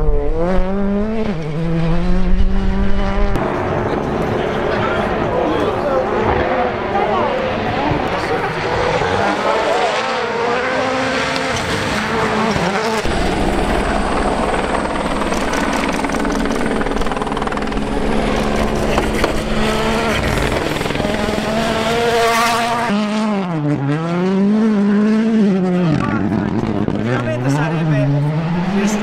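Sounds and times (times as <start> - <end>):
rally car engines revving hard: 0.0 - 29.0.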